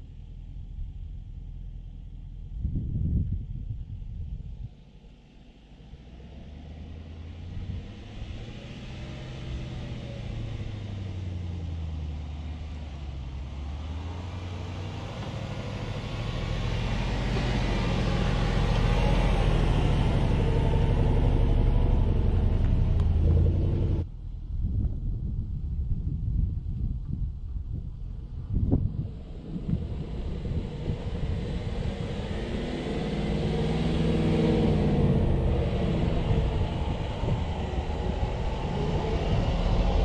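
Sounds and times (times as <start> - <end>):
engine exhaust revving: 5.7 - 24.1, 28.3 - 40.0.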